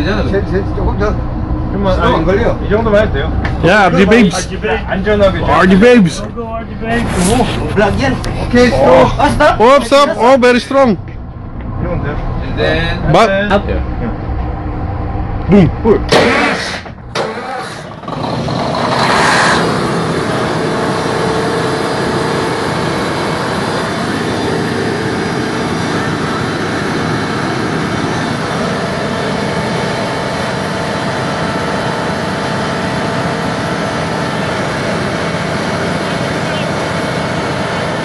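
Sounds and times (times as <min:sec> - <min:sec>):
ship diesel machinery running: 0:00.0 - 0:38.0
sharp loud knock: 0:16.1 - 0:17.3.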